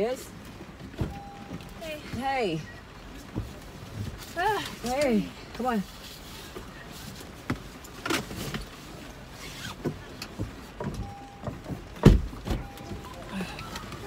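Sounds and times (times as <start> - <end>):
knocks and rustling in car: 0.6 - 2.3, 3.2 - 4.3, 7.3 - 13.1
seatbelt pulled across: 8.1 - 10.0
short electronic beep: 12.6 - 13.8.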